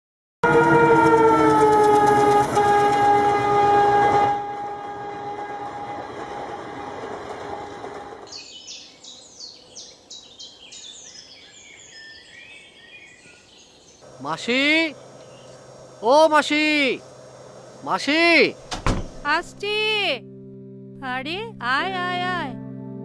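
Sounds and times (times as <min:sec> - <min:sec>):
locomotive air horn: 0:00.4 - 0:08.2, 0:14.1 - 0:18.7
passing train rumble: 0:00.4 - 0:10.1, 0:14.0 - 0:20.2
birds chirping: 0:07.3 - 0:19.5.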